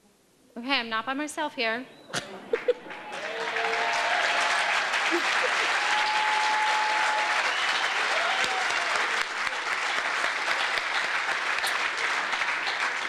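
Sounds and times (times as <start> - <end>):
audience applauding: 2.6 - 13.0.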